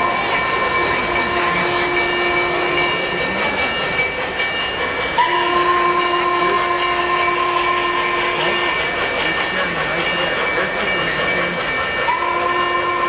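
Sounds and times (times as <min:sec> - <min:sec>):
steam whistle blasts: 0:00.0 - 0:03.0, 0:05.2 - 0:08.8, 0:12.1 - 0:13.0
model train running on track: 0:00.0 - 0:13.0.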